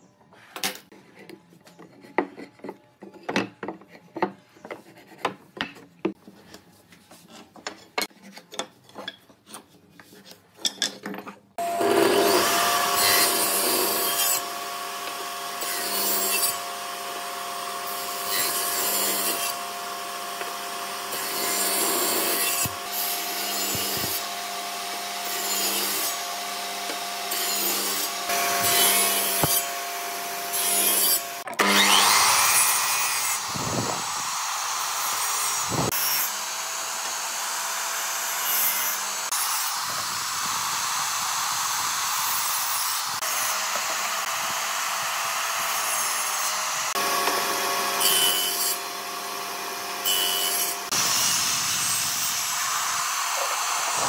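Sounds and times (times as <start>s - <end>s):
power tool whining on wood: 11.6s - 54.0s.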